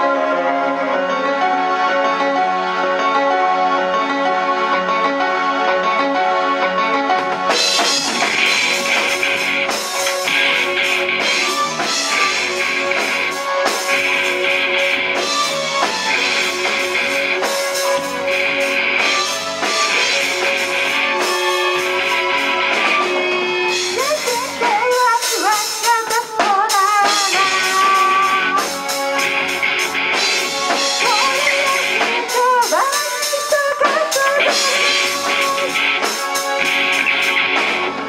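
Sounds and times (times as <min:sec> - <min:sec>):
electric guitars: 0:00.0 - 0:38.0
drum kit: 0:07.0 - 0:38.0
lead vocals: 0:20.7 - 0:29.5, 0:30.4 - 0:36.9.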